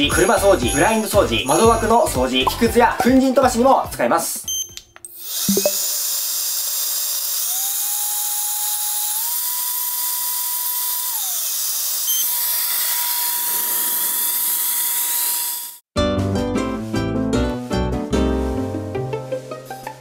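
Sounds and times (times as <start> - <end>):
electric air duster whining: 5.2 - 15.8.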